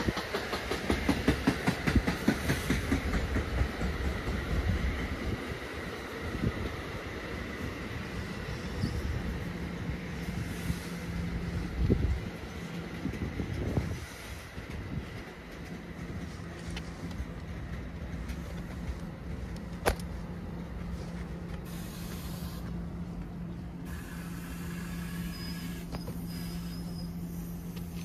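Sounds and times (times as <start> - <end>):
vehicle engine humming: 9.0 - 28.0.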